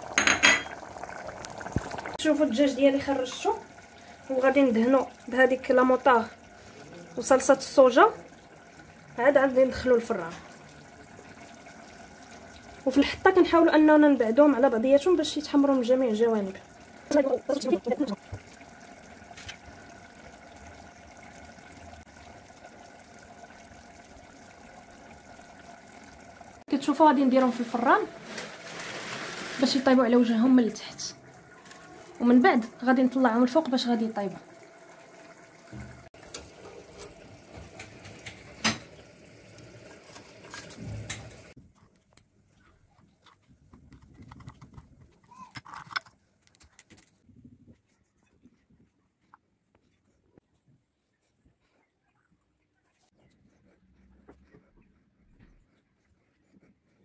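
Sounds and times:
charcoal hissing and crackling: 27.7s - 30.0s.

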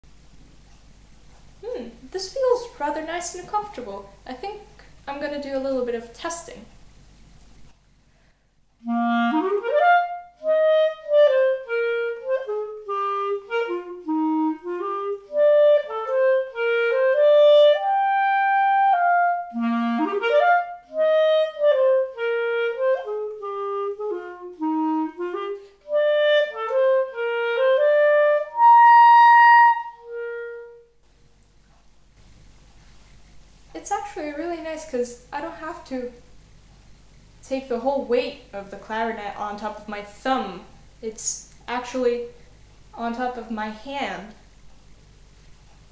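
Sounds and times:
clarinet melody: 8.8s - 31.0s.

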